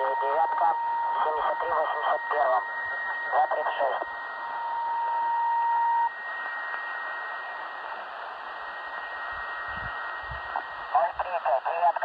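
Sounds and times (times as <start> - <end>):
steady mid-pitched beep: 0.0 - 7.9
faint steady whistle: 0.0 - 10.8
radio static hiss: 0.0 - 12.0.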